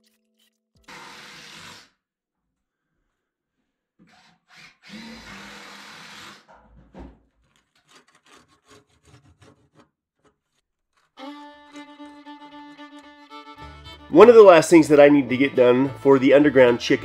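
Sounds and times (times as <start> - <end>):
rough scraping rub on wood: 7.4 - 11.2
fiddle-led background music: 11.2 - 17.0.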